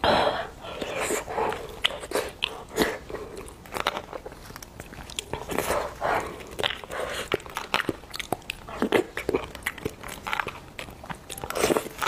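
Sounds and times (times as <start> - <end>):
chewing and mouth sounds: 0.6 - 12.0.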